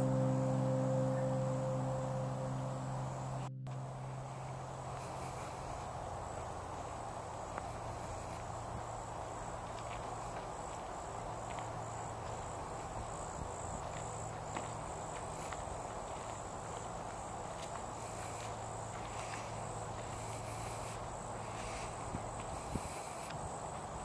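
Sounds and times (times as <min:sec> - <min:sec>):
insects trilling: 0:00.0 - 0:24.0
outdoor background hiss: 0:00.0 - 0:24.0
faint ticks: 0:17.6 - 0:23.9.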